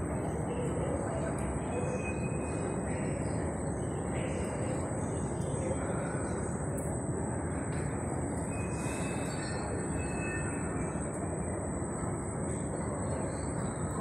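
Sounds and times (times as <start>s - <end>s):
thin high whine: 8.4s - 11.3s.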